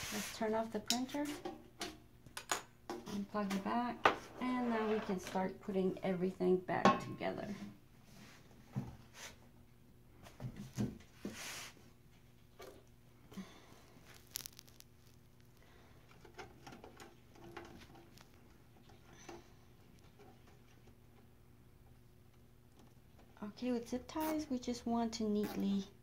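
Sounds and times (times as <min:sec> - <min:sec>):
small clicks and rustles of wires: 0:12.2 - 0:23.4.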